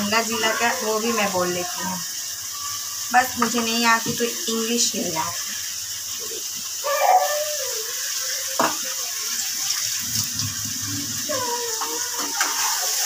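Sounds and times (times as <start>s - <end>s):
tap water running into sink: 0.0s - 13.0s.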